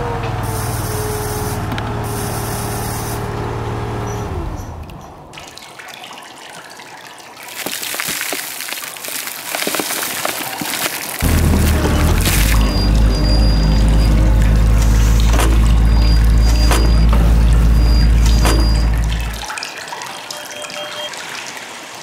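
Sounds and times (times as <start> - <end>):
drilling machinery humming: 0.0 - 5.3, 11.2 - 19.5
water gushing and dripping: 0.0 - 22.0
machine whine: 11.2 - 19.5.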